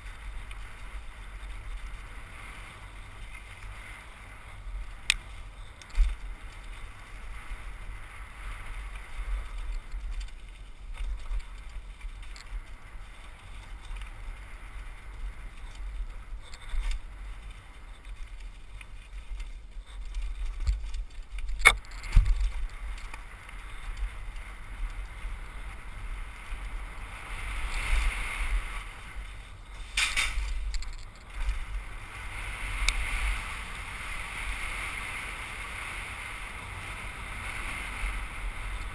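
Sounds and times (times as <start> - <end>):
tyres over dirt and rock: 0.0 - 38.9
wind rumble on microphone: 0.0 - 38.9
bike knocking on rocks: 15.6 - 23.3, 29.7 - 31.7.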